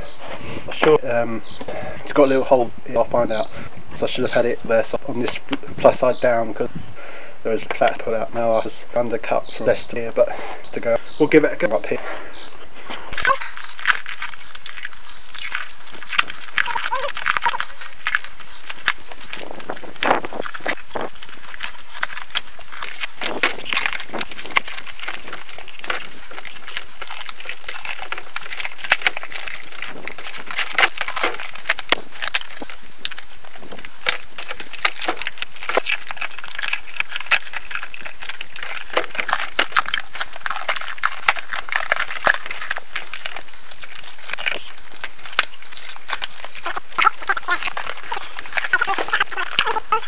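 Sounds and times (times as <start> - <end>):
rubber sheet crinkling on bark: 13.1 - 50.0.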